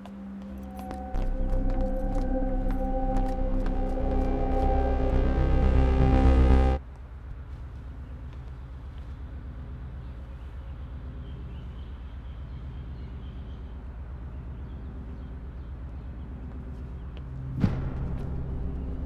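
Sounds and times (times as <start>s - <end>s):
low fluttering hum: 0.0s - 6.8s, 13.8s - 19.0s.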